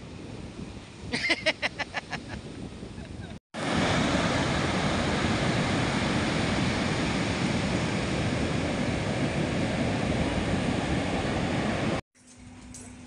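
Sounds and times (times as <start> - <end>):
wind buffeting microphone: 0.0 - 12.0
ocean surf breaking: 3.6 - 12.0.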